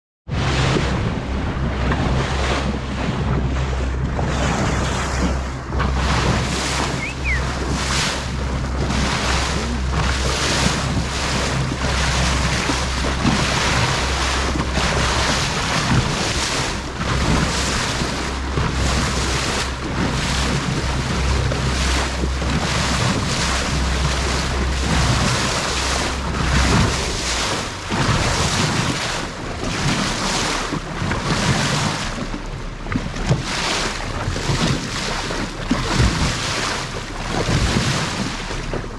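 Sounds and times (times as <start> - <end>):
bow wave splashing along hull: 0.3 - 38.9
low engine hum: 0.3 - 38.9
wind buffeting microphone: 0.3 - 38.9.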